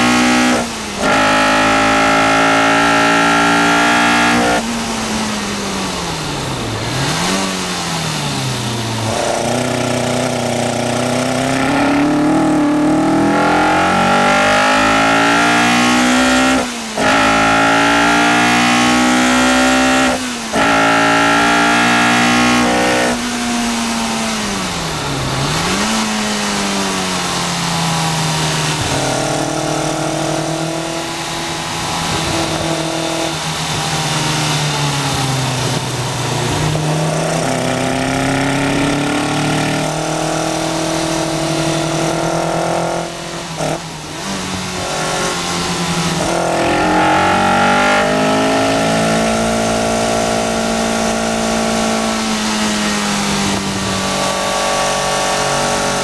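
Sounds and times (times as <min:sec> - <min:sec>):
car engine revving with gear shifts: 0:00.0 - 0:56.0.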